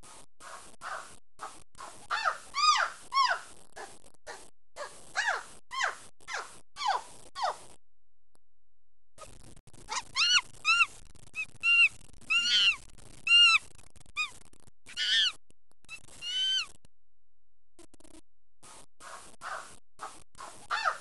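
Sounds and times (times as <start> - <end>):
high-pitched hooting calls: 9.9 - 13.6, 14.9 - 16.7.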